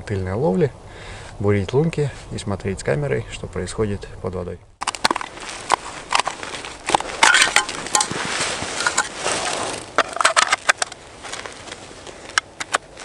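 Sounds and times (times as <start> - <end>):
snow crunching: 4.9 - 13.0
winter clothing rustling: 5.0 - 13.0.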